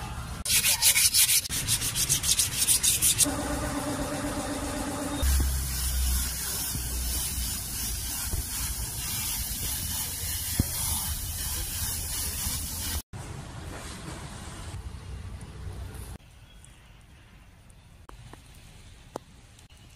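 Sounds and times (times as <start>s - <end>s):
spray nozzle hissing: 5.2s - 13.0s.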